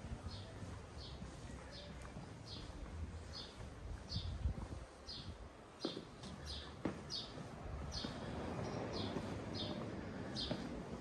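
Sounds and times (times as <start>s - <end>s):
small bird chirping: 5.0s - 10.6s.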